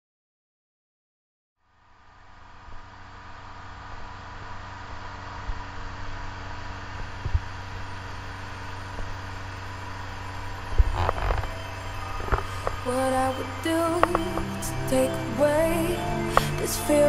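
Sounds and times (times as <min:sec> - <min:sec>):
motorboat engine running: 0:03.4 - 0:17.0.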